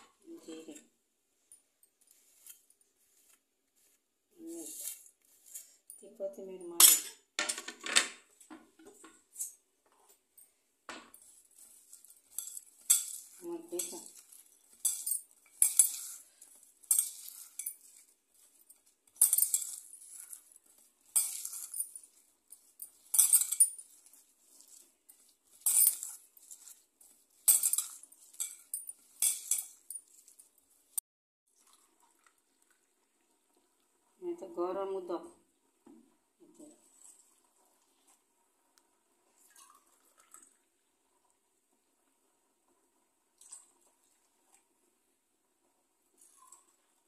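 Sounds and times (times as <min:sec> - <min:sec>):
hand squishing chopped vegetables: 0:01.8 - 0:05.9, 0:11.2 - 0:33.8.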